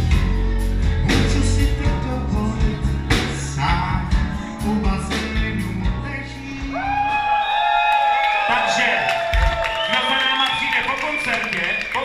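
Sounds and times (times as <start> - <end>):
live band music: 0.0 - 7.4
drum kit: 0.0 - 7.5.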